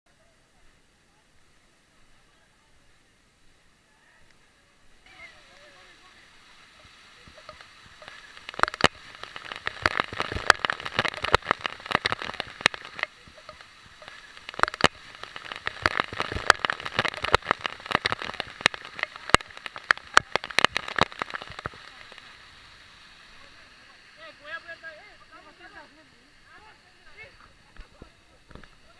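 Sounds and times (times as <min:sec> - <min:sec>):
rush of falling water: 0:00.1 - 0:28.9
water drops hitting the camera: 0:06.8 - 0:22.4.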